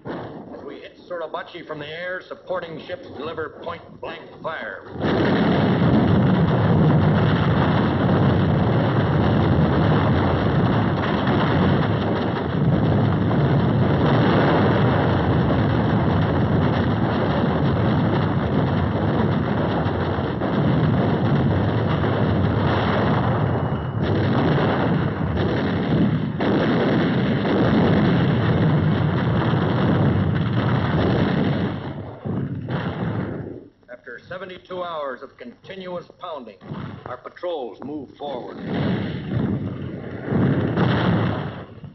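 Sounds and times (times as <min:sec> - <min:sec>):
gunfire barrage: 0:00.0 - 0:41.9
shell bursts: 0:00.0 - 0:41.9.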